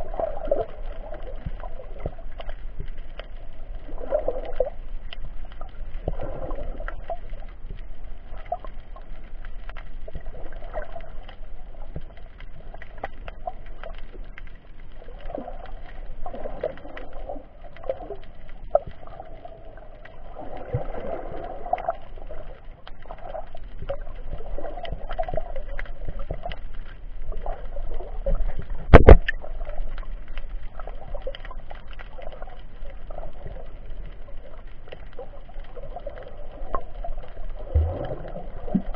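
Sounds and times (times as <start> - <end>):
muffled underwater water noise: 0.0 - 38.9.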